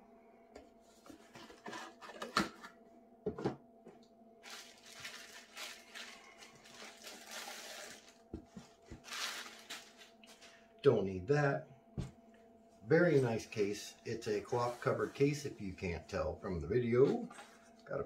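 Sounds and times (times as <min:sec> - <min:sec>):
packaging rustling and sliding: 0:04.4 - 0:10.6.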